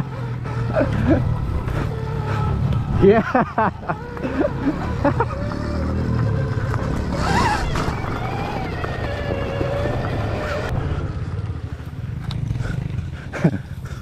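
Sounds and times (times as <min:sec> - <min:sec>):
electric motorbike motor whining: 0:00.0 - 0:13.0.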